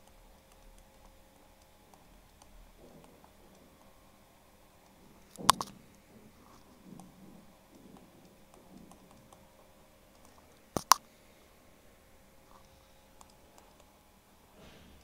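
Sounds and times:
stylus tapping on tablet screen: 4.8 - 11.0
sharp loud clicks: 10.1 - 11.0.

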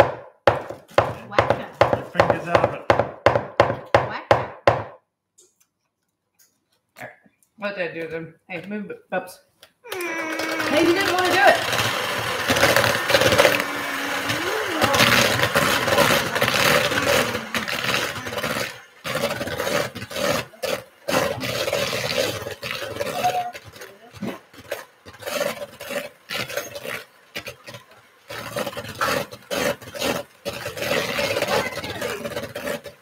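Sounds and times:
electric mixer humming: 9.9 - 24.2, 28.3 - 32.9.

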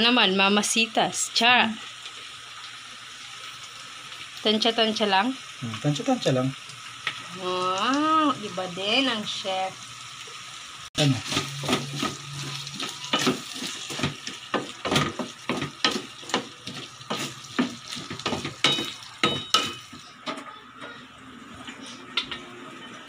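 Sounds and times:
stir-fry sizzling: 0.0 - 23.0
spatula knocking against pan: 12.8 - 20.4.

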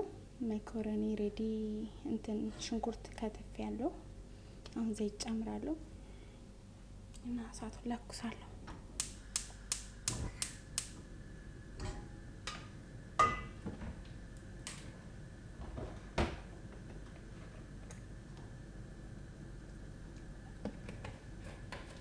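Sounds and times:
gas hob igniter clicking: 9.0 - 11.0, 14.0 - 14.9.

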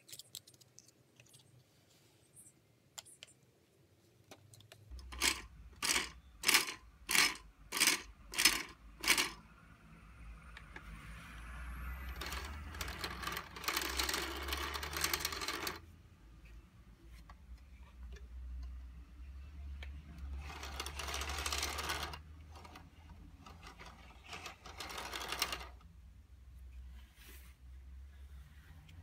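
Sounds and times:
plastic toy gears clicking: 4.9 - 9.4, 12.1 - 15.9, 20.2 - 25.8.

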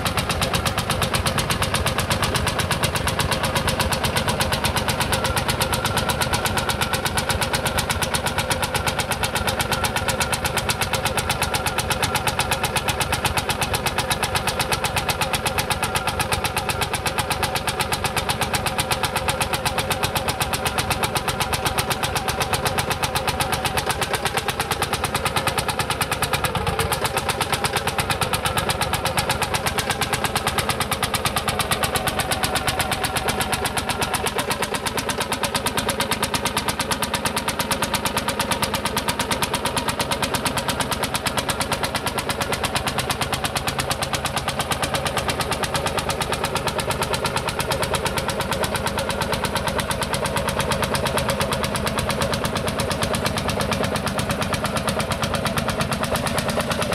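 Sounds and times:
tractor engine running: 0.0 - 56.9.

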